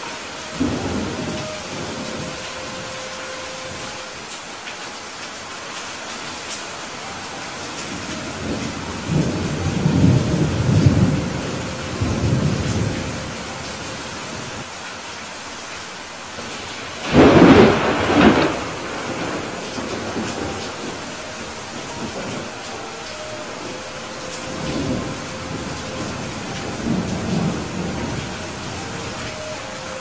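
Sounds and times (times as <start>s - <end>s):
thunder rumbling: 0.0s - 4.0s, 7.1s - 14.6s, 16.4s - 30.0s
steady rain: 0.0s - 30.0s
sharp thunderclap: 17.0s - 20.9s.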